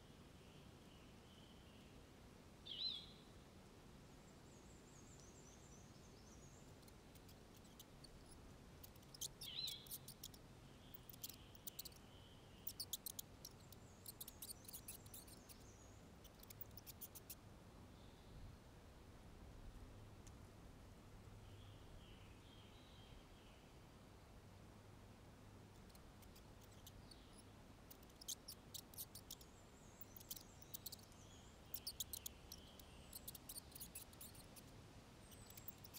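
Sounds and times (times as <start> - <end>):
high quick bird chirps: 7.2 - 17.3, 25.8 - 34.7.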